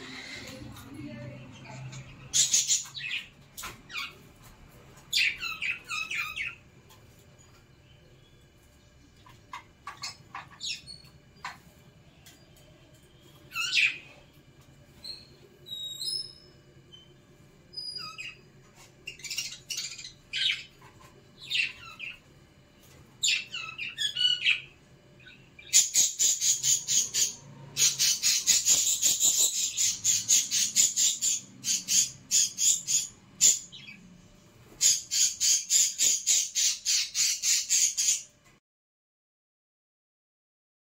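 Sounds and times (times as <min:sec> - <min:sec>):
budgerigars chirping: 0:02.3 - 0:03.3, 0:05.1 - 0:06.6, 0:19.1 - 0:20.8, 0:23.2 - 0:34.0, 0:34.8 - 0:38.3.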